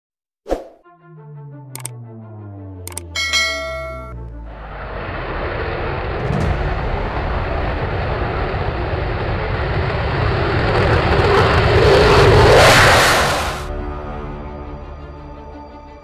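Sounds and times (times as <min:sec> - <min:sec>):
jet engine rumble: 0:04.5 - 0:13.7.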